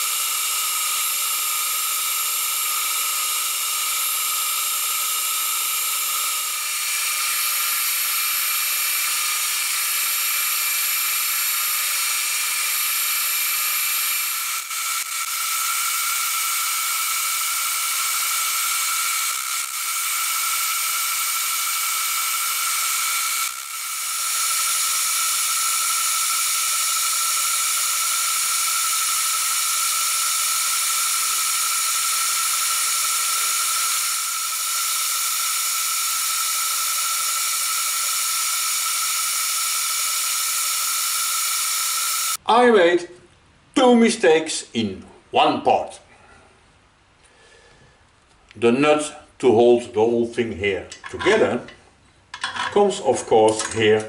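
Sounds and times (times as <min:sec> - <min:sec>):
milling machine cutting metal: 0:00.0 - 0:42.4.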